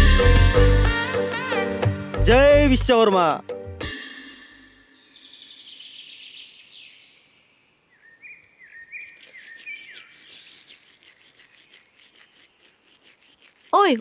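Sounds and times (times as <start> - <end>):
birds calling: 4.9 - 12.6
toothbrush scrubbing teeth: 9.1 - 14.0.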